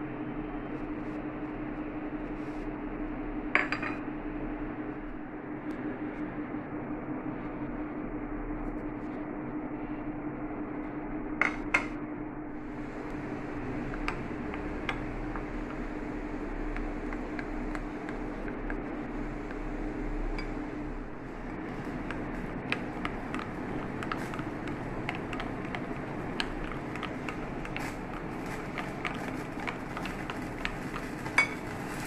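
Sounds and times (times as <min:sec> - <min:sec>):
steady hum: 0:00.0 - 0:32.0
batter stirred in bowl: 0:12.6 - 0:32.0.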